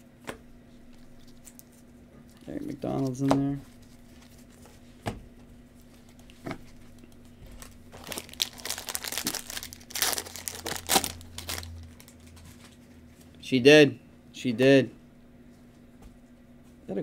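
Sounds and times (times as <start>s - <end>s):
foil wrapper crinkling and tearing: 7.0s - 12.6s.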